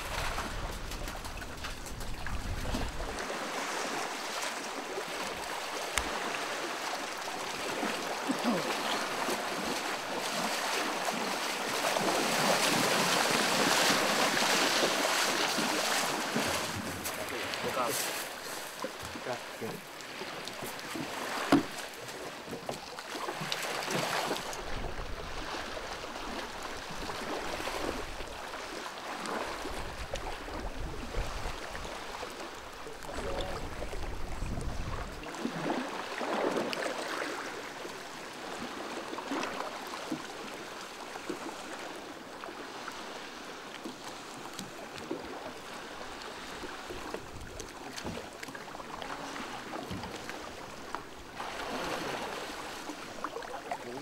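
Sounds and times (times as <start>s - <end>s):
wind rumbling on microphone: 0.0s - 4.0s, 24.5s - 28.7s, 29.5s - 35.8s
water lapping and splashing: 0.0s - 54.0s.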